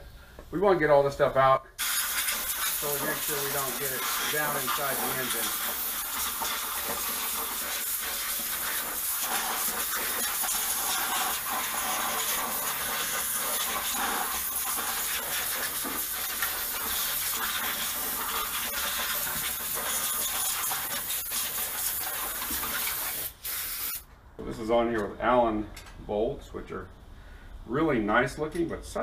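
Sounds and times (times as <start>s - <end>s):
compressed air hissing from blow gun: 1.8s - 24.0s.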